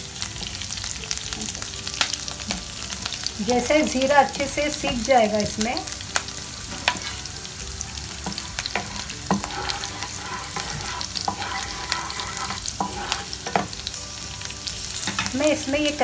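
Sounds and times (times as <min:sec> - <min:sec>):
spices sizzling in hot oil: 0:00.0 - 0:16.0
wooden spatula stirring in pan: 0:06.6 - 0:07.3, 0:08.2 - 0:13.9.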